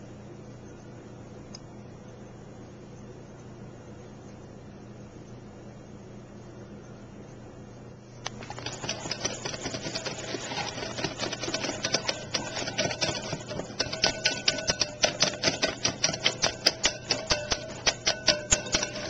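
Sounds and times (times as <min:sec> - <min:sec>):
utensil beating batter in glass bowl: 0:08.3 - 0:19.0.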